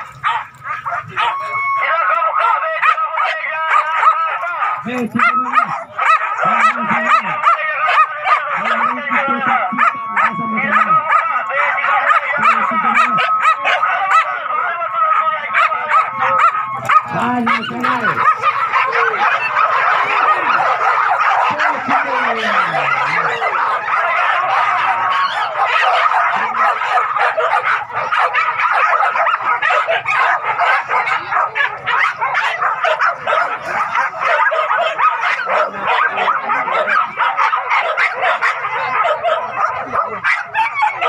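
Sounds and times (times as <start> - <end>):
dogs yelping and barking: 0.0 - 41.0.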